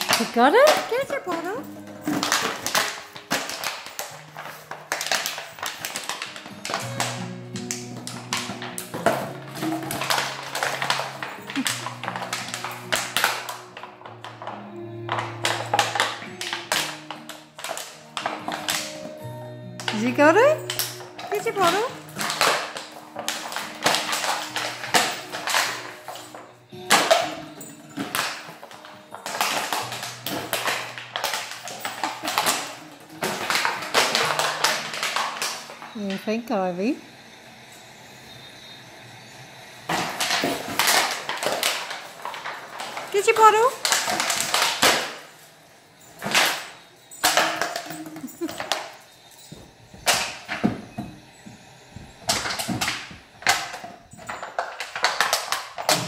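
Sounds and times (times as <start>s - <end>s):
plastic bottle clattering on tile: 0.0s - 36.4s, 39.9s - 56.0s.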